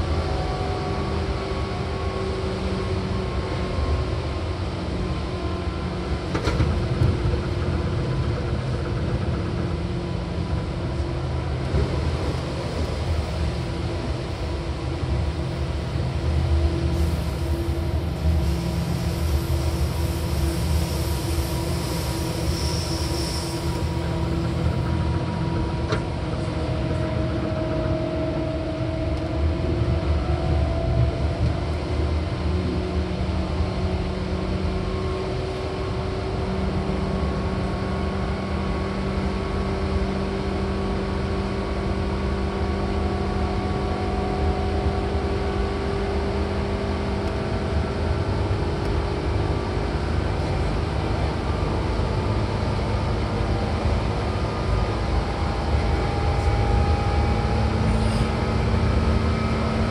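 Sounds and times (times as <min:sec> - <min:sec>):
train wheels rumbling on track: 0:00.0 - 0:59.9
train motor whine: 0:15.0 - 0:29.3, 0:54.3 - 0:59.9.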